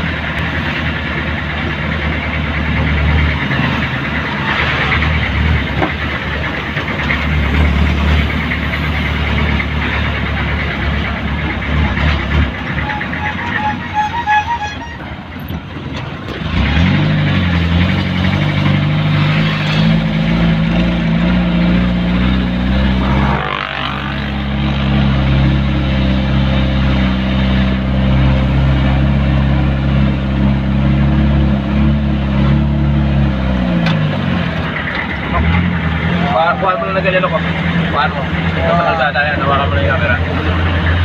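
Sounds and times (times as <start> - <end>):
road noise: 0.0 - 41.0
vehicle engine running: 0.0 - 41.0.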